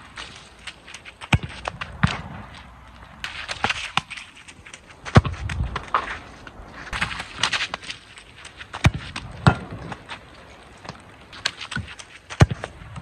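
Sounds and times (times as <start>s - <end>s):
ball kick thud: 1.2s - 2.5s, 5.1s - 6.2s, 8.8s - 10.0s, 11.8s - 13.0s.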